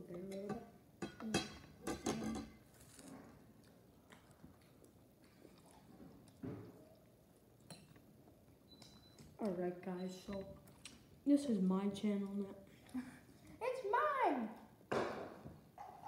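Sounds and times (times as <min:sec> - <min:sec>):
faint chewing: 0:02.6 - 0:11.2.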